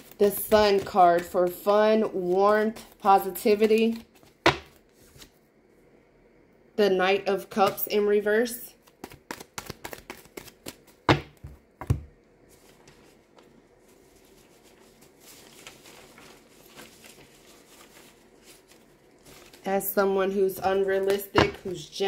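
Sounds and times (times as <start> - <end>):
cards being shuffled: 0.0 - 5.3, 8.8 - 19.7.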